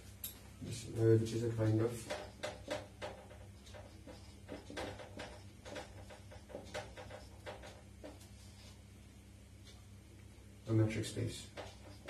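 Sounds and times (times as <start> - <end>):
faint low hum: 0.0 - 12.0
marker squeaking on whiteboard: 2.0 - 8.8, 11.5 - 12.0.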